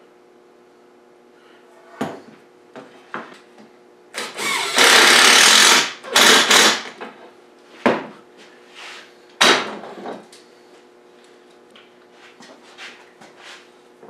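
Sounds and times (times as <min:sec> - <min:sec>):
impact driver driving screw: 0:04.2 - 0:06.9.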